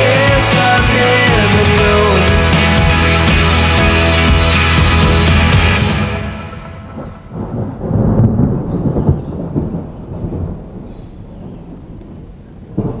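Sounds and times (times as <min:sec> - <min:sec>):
thunder rumbling: 0:05.1 - 0:13.0
rain: 0:06.6 - 0:13.0.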